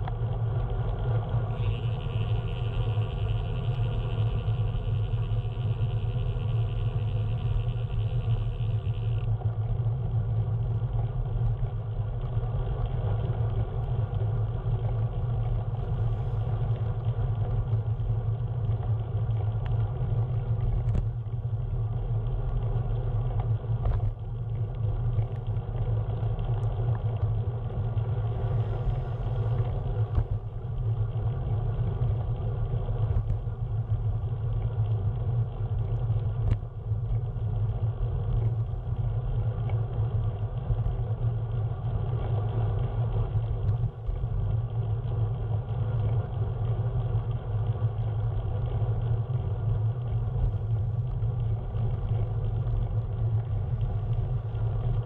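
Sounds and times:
faint ticks: 0.0s - 55.0s
vehicle rumble in motion: 0.0s - 55.0s.

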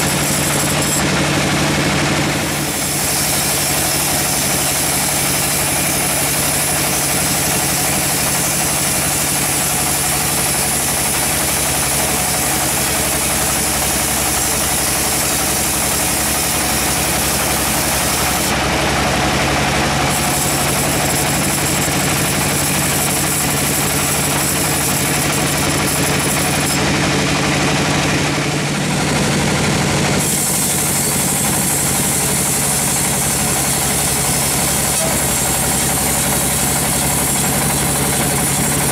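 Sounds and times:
band saw cutting log: 0.0s - 38.9s.

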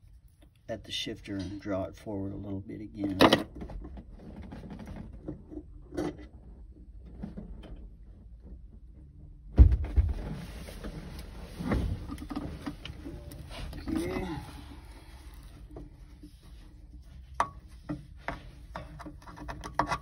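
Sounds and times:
heavy thump: 9.5s - 10.4s
rustling movement: 10.0s - 19.6s.

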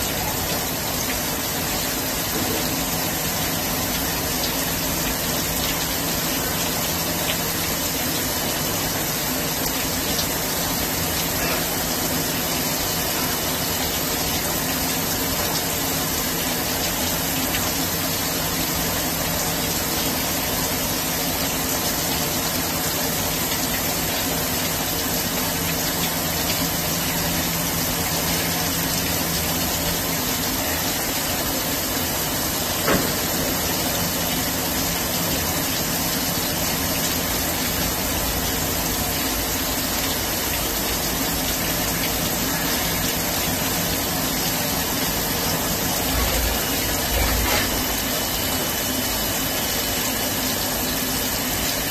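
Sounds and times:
brief knock: 32.8s - 33.3s.

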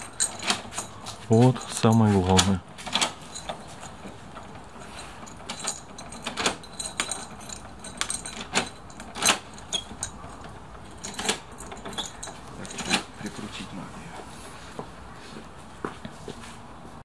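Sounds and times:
lock bolts clacking: 0.0s - 13.4s
keys jangling on a ring: 0.0s - 13.6s.

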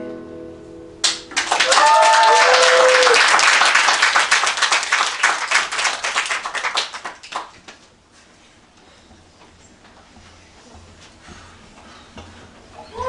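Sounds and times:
small audience clapping: 1.0s - 7.9s.

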